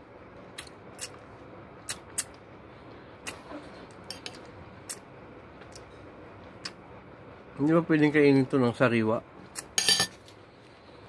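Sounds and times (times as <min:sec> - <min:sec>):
metal spoon clinking on bowl: 0:09.8 - 0:10.2.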